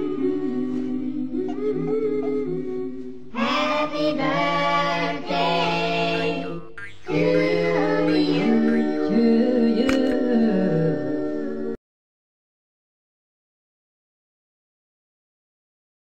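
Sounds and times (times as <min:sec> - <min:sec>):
voices singing in harmony: 0:00.0 - 0:11.8.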